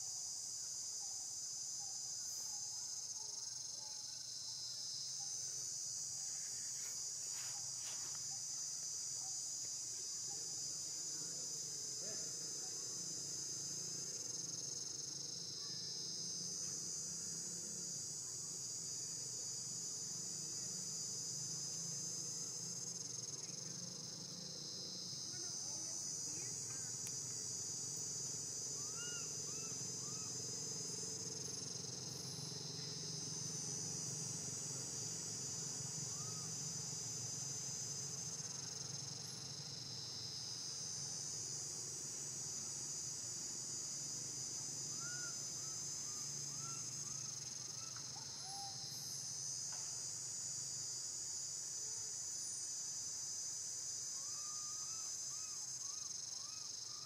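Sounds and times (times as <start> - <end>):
insect chorus: 0.0 - 57.0.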